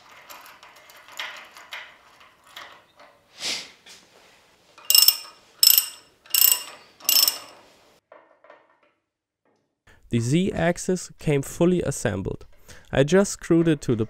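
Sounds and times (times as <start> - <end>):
ratchet wrench clicking: 4.9 - 7.5.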